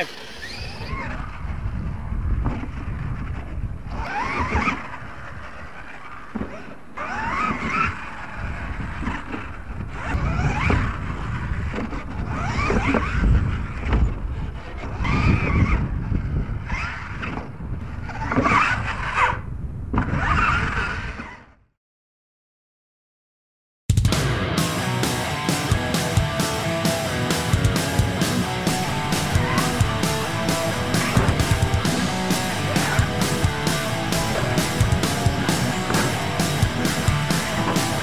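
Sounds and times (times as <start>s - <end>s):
rc truck motor whining: 0.0s - 1.6s, 4.0s - 17.2s.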